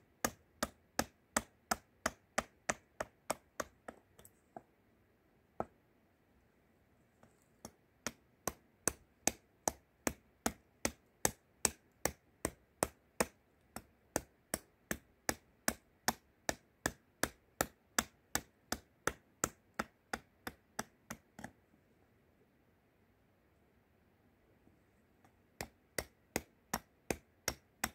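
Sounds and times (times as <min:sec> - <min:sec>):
hatchet chopping wood: 0:00.2 - 0:04.0, 0:07.6 - 0:21.5, 0:25.6 - 0:27.9.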